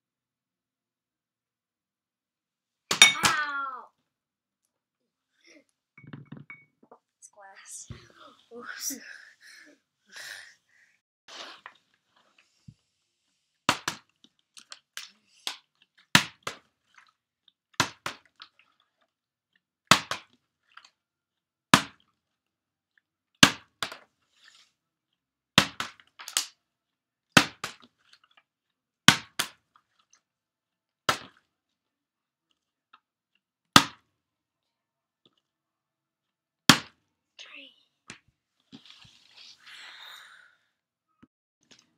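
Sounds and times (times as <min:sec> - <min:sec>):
water bottle knocking on wooden floor: 0:06.0 - 0:06.7.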